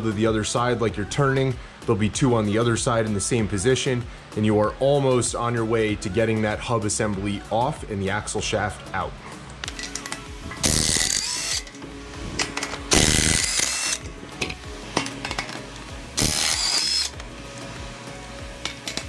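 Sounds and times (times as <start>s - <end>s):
impact wrench hammering: 12.4s - 15.6s, 16.2s - 17.2s.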